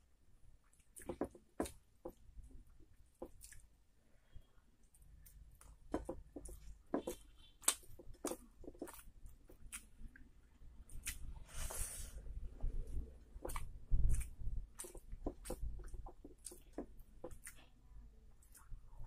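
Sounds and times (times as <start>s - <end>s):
fingers squishing rice: 0.0s - 19.0s
mouth chewing with wet smacks: 2.7s - 3.8s, 4.8s - 11.3s, 12.6s - 19.0s.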